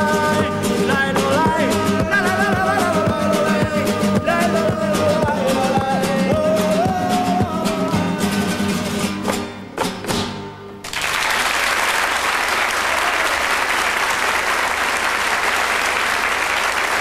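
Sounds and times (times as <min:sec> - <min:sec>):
flamenco guitar chords: 0:00.0 - 0:10.9
audience applause: 0:10.8 - 0:17.0.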